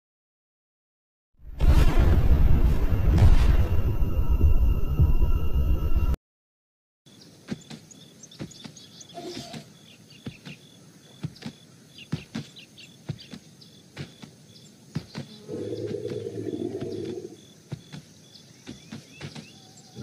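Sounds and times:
birds chirping: 7.1 - 20.0
elephant footfalls: 7.4 - 19.7.

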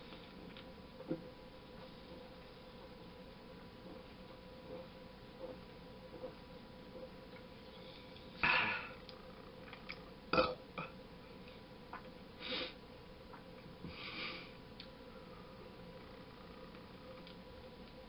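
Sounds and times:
man burping: 8.4 - 9.0, 10.3 - 10.9.

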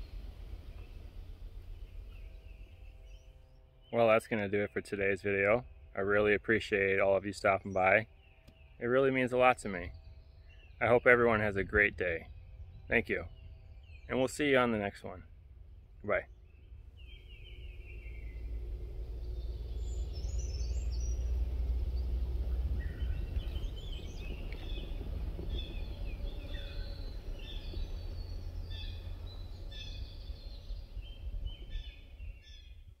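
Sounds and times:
birds chirping and trilling: 0.0 - 33.0
steady low rumble: 0.0 - 33.0.

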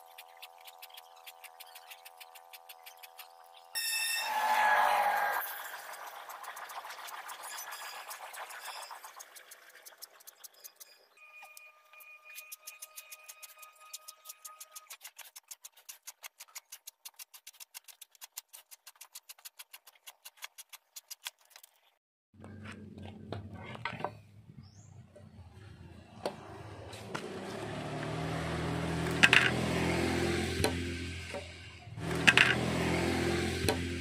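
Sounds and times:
hand saw cutting bamboo: 0.0 - 3.4, 12.4 - 21.5.

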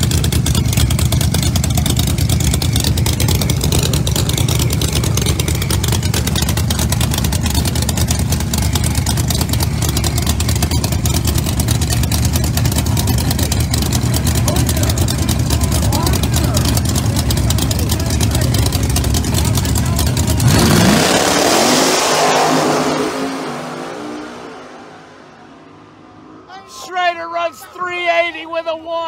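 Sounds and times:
engine idling loudly: 0.0 - 21.5.

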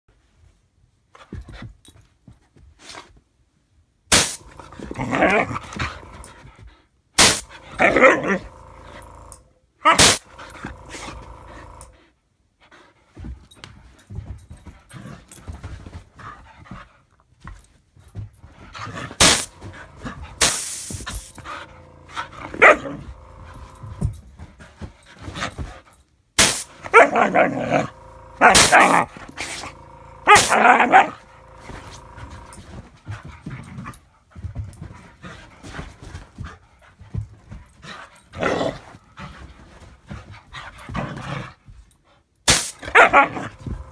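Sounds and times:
dog barking and yowling: 7.6 - 9.0, 22.1 - 23.6, 26.8 - 32.4, 42.8 - 43.9.

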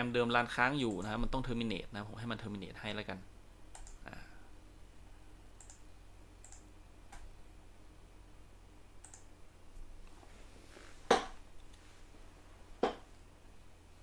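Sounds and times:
computer mouse clicks: 3.7 - 4.0, 5.5 - 7.3, 9.0 - 9.3.

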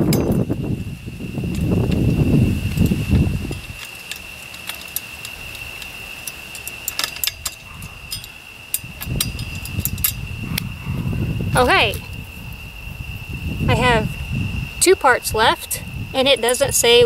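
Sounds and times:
metal parts clicking: 1.5 - 10.7.

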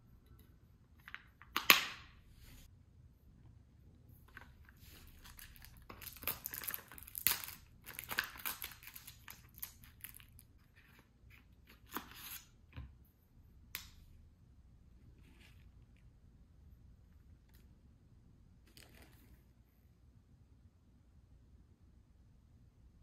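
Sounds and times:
cardboard packaging crinkling: 5.1 - 10.5.

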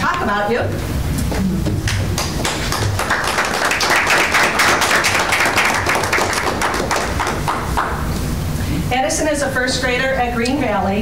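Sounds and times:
audience clapping: 1.8 - 8.1.

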